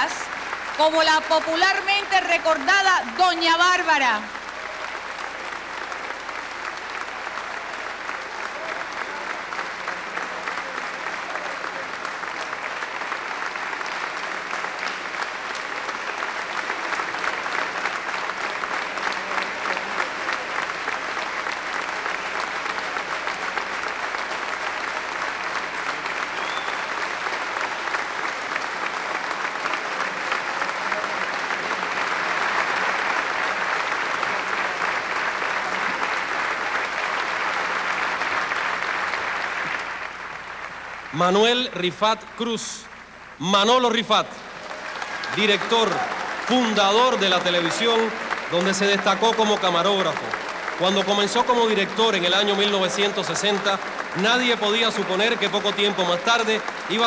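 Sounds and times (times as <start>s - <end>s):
audience applauding: 0.0s - 57.0s.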